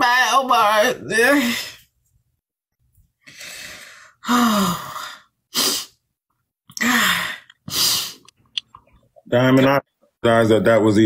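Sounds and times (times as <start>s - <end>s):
woman sighing heavily: 6.8s - 7.8s.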